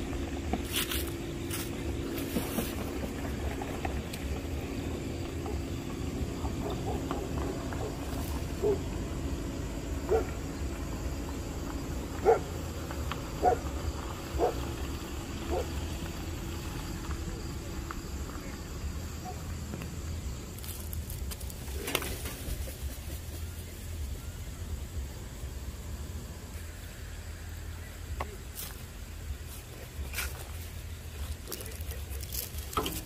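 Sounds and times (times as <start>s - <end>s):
steady low hum: 0.0s - 33.0s
rustle: 0.6s - 2.9s.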